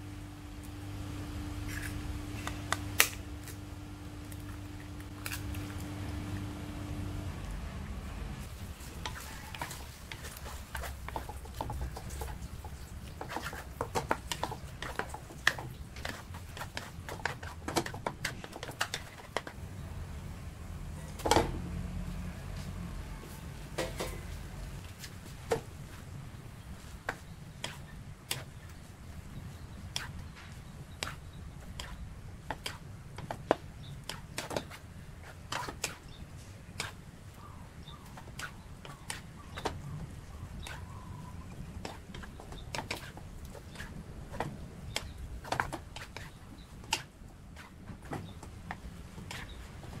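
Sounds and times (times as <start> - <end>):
low steady hum: 0.0 - 50.0
wooden spatula scraping wok: 8.4 - 19.6.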